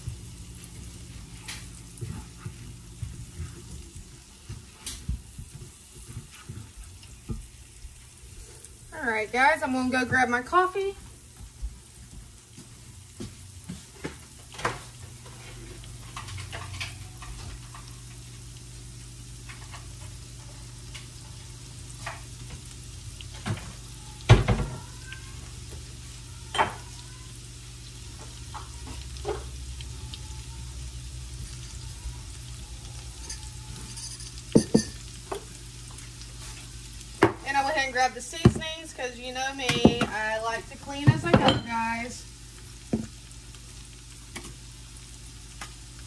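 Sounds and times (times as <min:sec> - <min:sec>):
onion and garlic sizzling in skillet: 0:00.0 - 0:46.0
kitchen knocks and clatter: 0:33.2 - 0:35.5, 0:38.4 - 0:38.7, 0:39.7 - 0:40.2, 0:41.0 - 0:41.8, 0:42.9 - 0:43.1.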